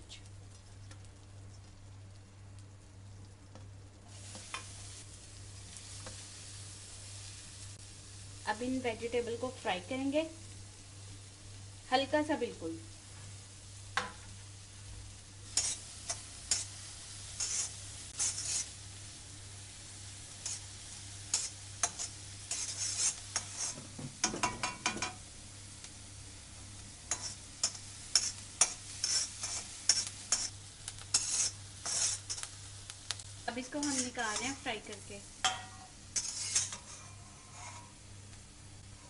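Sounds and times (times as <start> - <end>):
vegetables frying in butter: 0.0 - 39.0
metal spoon scraping a pan: 15.5 - 18.8, 20.4 - 20.7, 21.3 - 25.2, 27.1 - 32.5, 33.6 - 34.7, 35.4 - 38.0.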